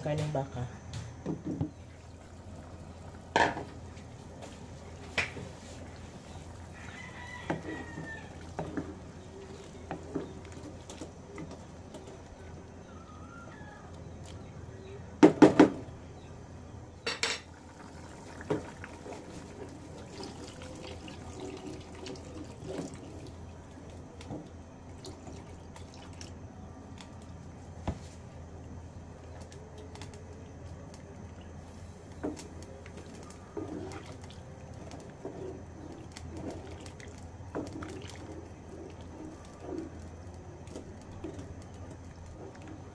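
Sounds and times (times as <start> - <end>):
liquid sloshing and pouring: 17.5 - 26.4, 31.0 - 42.9.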